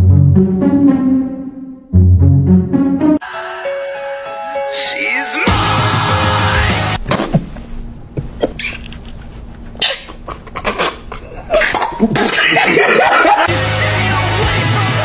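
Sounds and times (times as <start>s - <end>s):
man stifling laughter: 9.0s - 13.5s.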